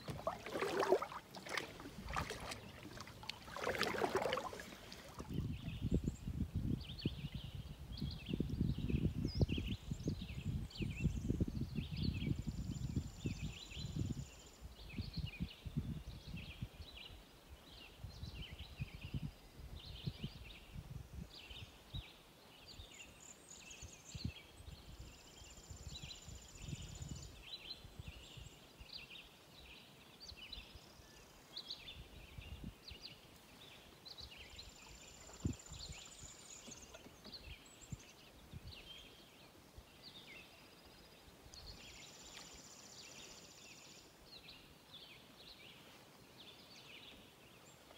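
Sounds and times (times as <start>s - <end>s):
birds chirping: 0.0s - 5.8s
canoe paddling in water: 0.0s - 5.8s, 33.4s - 39.2s.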